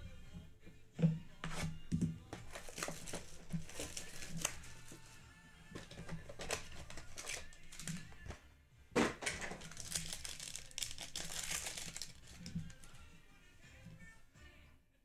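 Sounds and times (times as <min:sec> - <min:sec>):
foil pack crinkling and tearing: 0:02.5 - 0:05.2, 0:05.8 - 0:08.3, 0:09.3 - 0:13.0.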